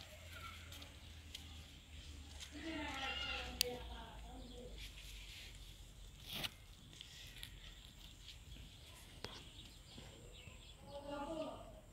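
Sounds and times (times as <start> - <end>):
brief rustle: 4.8 - 9.5.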